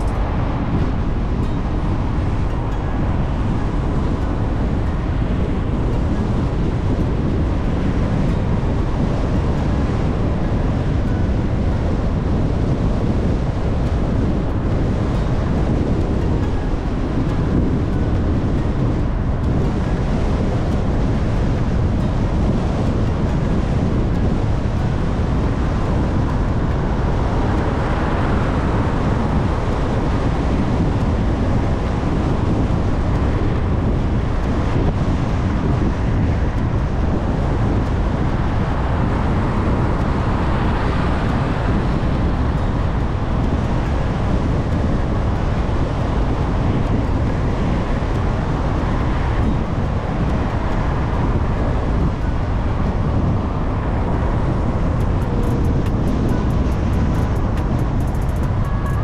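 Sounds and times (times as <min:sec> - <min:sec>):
wind-like rumble and hiss: 0:00.0 - 0:59.0.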